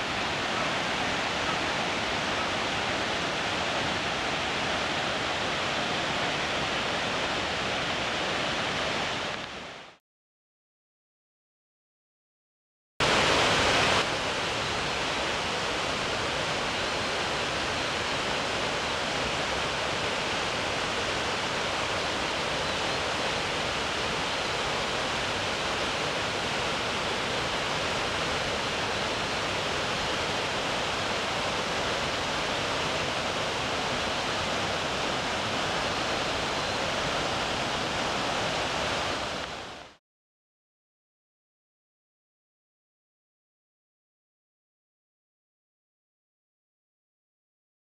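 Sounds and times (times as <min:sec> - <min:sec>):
rocky stream: 0:00.0 - 0:10.0, 0:13.0 - 0:40.0
waterfall rushing: 0:00.0 - 0:10.0, 0:13.0 - 0:40.0.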